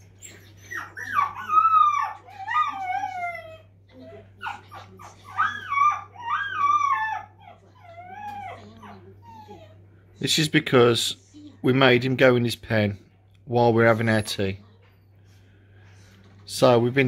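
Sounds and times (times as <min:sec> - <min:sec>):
puppy whining: 0:00.0 - 0:09.9.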